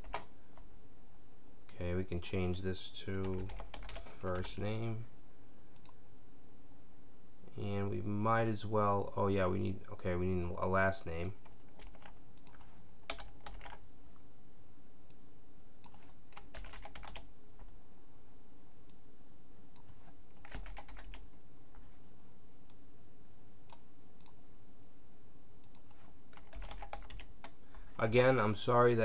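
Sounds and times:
keyboard typing clicks: 0:11.2 - 0:13.8, 0:25.6 - 0:27.6.

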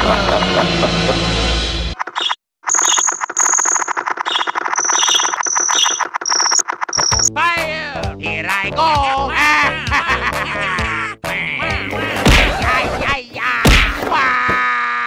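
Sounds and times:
background music: 0:07.3 - 0:13.2
cartoonish character voice: 0:07.4 - 0:10.0, 0:10.8 - 0:14.4.

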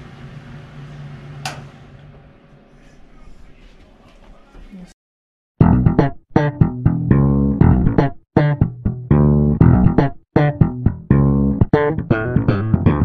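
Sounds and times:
bass: 0:05.6 - 0:13.0
plucked guitar: 0:05.6 - 0:13.0.

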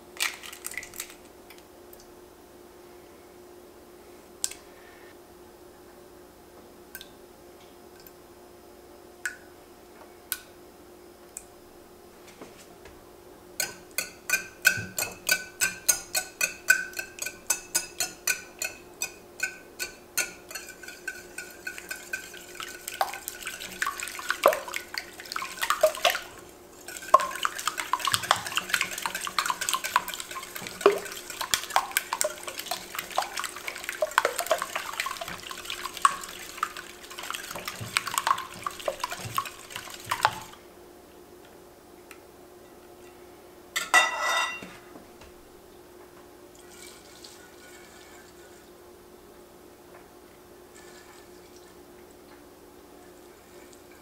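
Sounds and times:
eggs tapping on glass bowl: 0:13.6 - 0:40.5
whisk clicking against glass bowl: 0:13.6 - 0:40.5.

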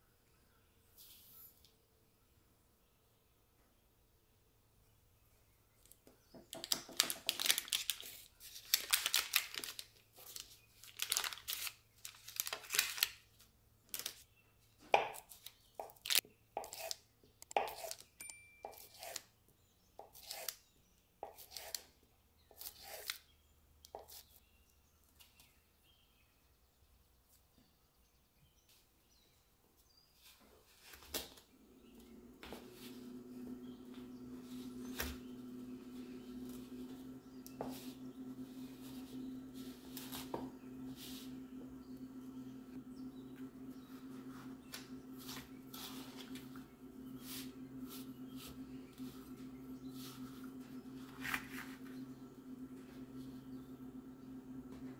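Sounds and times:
pastry blender scraping in bowl: 0:16.6 - 0:18.1, 0:31.8 - 0:54.9
knife cutting butter on board: 0:16.6 - 0:19.3, 0:20.0 - 0:20.6, 0:21.2 - 0:21.9, 0:22.5 - 0:23.2
steady low hum: 0:31.5 - 0:54.9.

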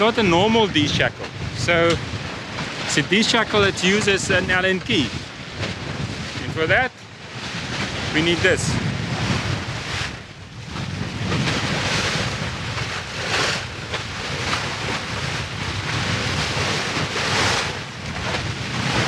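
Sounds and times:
sea water rushing along hull: 0:00.0 - 0:19.0
wind buffeting microphone: 0:00.0 - 0:19.0.

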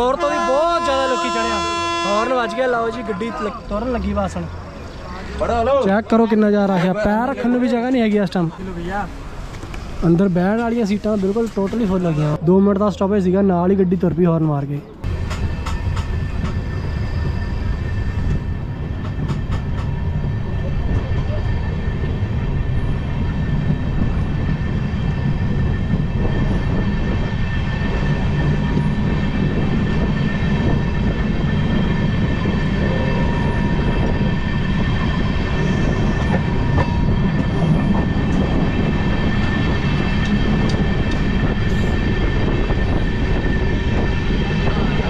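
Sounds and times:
train wheels rumbling on rails: 0:00.0 - 0:45.0.

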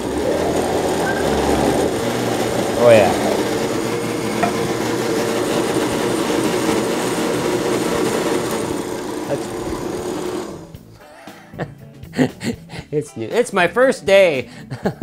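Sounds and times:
blender motor humming: 0:00.0 - 0:10.8.

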